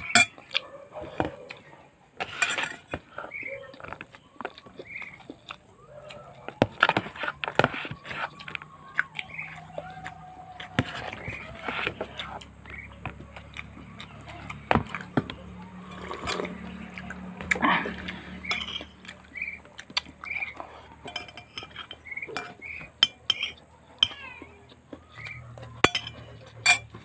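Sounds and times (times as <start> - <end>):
animal calls: 3.1 - 27.0
wet chewing and lip-smacking: 3.4 - 21.1.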